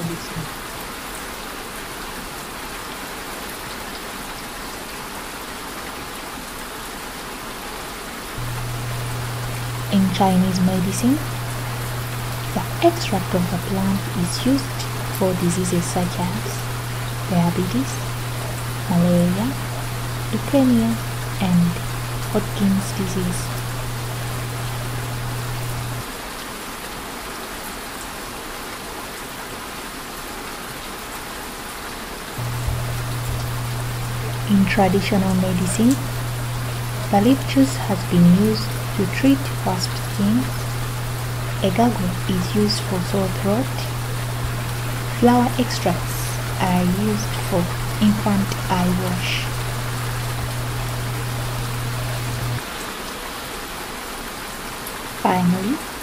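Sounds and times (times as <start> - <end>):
steady rain hiss: 0.0 - 56.0
low hum: 8.4 - 26.0, 32.4 - 52.6
faint raindrop ticks: 32.4 - 52.7.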